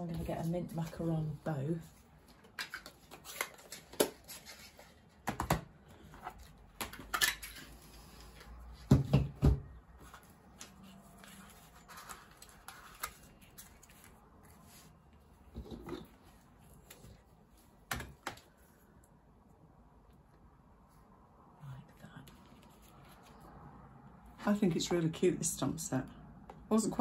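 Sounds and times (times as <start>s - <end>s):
paper and card rustling: 0.1s - 5.3s, 10.0s - 18.6s.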